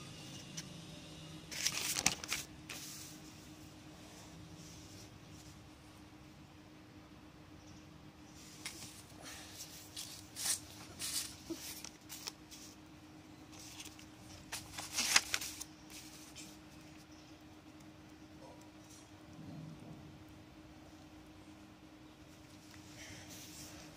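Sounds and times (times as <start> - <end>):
notebook pages rustling: 1.5 - 3.5, 8.4 - 12.8, 13.5 - 17.0.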